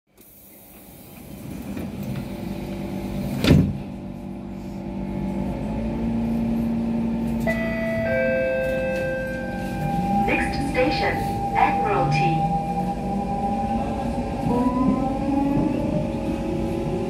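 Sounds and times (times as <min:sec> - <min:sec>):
train doors closing thud: 0:03.3 - 0:03.9.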